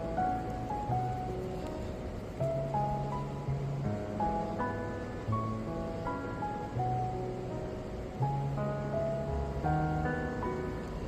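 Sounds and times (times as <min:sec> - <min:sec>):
slow music of held notes: 0:00.0 - 0:11.0.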